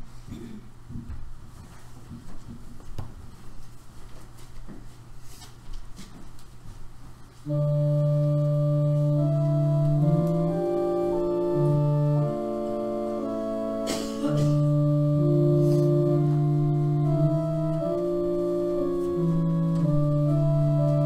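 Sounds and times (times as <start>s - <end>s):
faint clicks and shuffles: 0.9s - 11.8s
organ playing hymn chords: 7.4s - 21.0s.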